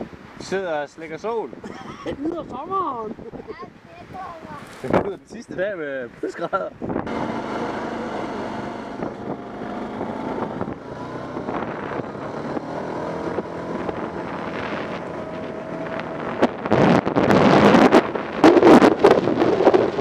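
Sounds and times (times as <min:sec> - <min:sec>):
wind buffeting microphone: 0:00.0 - 0:20.0
atv engine running: 0:07.0 - 0:20.0.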